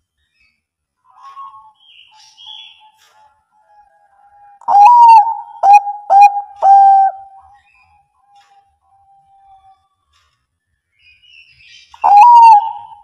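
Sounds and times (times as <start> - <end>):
dove cooing: 4.6 - 7.6, 12.0 - 13.0.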